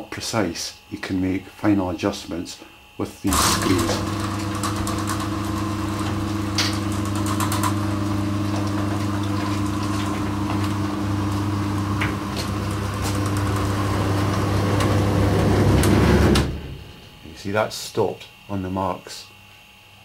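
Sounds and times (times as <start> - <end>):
garage door opener motor humming: 3.2 - 17.7.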